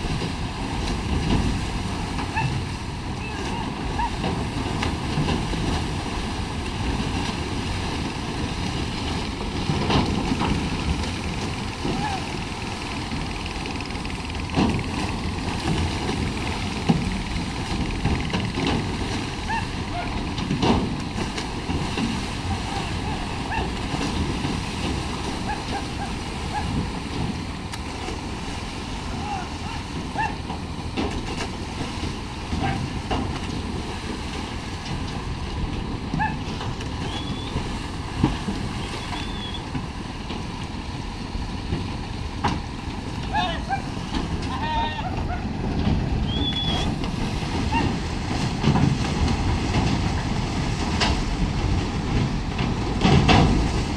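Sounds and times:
churning of swimming animals: 0:00.0 - 0:53.9
steady rumbling noise: 0:00.0 - 0:53.9
steady low rumble: 0:04.8 - 0:29.5.

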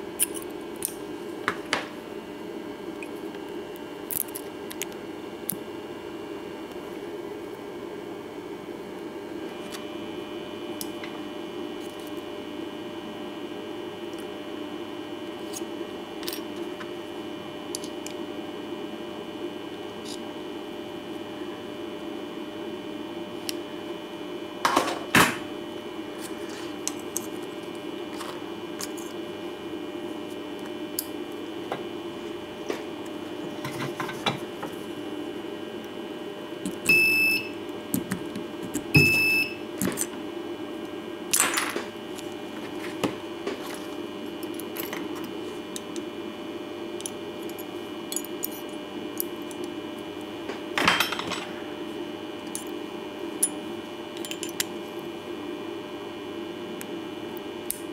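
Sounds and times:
machine hum: 0:00.0 - 0:57.9
short electronic beep: 0:39.0 - 0:39.6.

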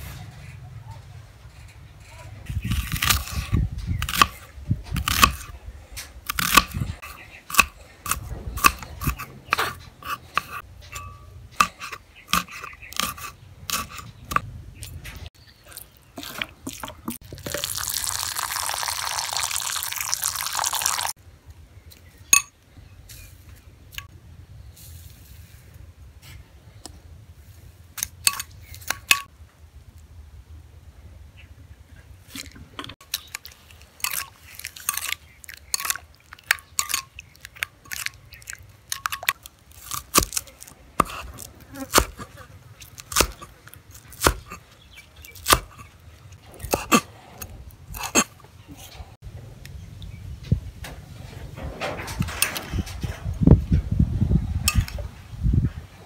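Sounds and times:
liquid pouring into glass bowl: 0:17.3 - 0:21.1
knife slicing on wooden board: 0:41.0 - 0:43.5.

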